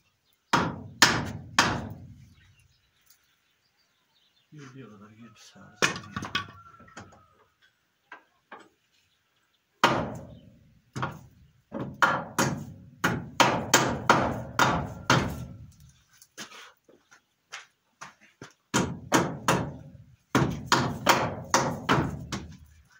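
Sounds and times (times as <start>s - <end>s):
hammer striking nails into wood: 0.5s - 2.0s, 9.8s - 10.4s, 11.8s - 15.5s, 18.7s - 22.5s.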